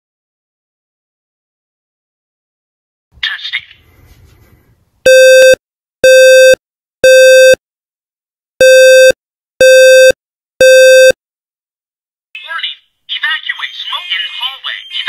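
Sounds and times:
smoke alarm buzzy beeps: 5.1s - 7.6s, 8.6s - 11.2s.

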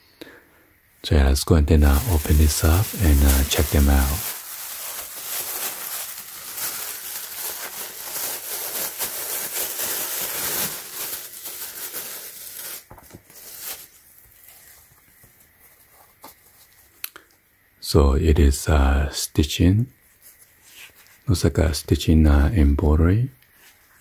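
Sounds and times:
plastic bag crinkling: 1.7s - 16.8s.

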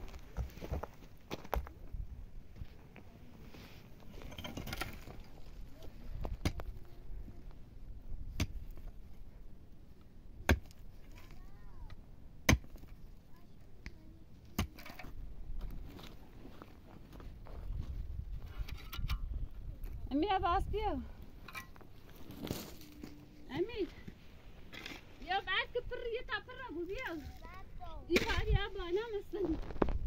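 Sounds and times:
pickaxe striking stony earth: 8.3s - 8.8s, 10.4s - 10.8s, 12.4s - 13.0s, 14.5s - 15.2s, 28.1s - 28.6s.

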